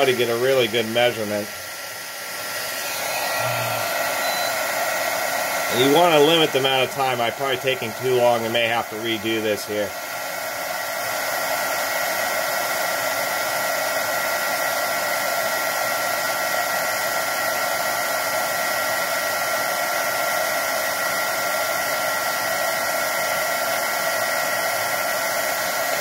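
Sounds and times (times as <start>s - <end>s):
heat gun blowing with whine: 0.0s - 26.0s.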